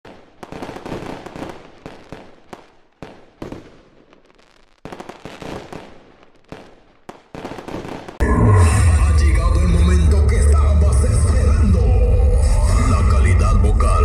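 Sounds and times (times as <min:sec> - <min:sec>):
fireworks crackling pops and bangs: 0:00.0 - 0:08.2.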